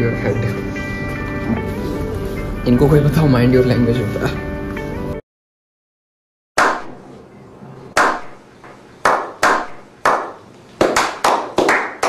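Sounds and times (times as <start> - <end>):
hand claps with echo: 9.0 - 12.0.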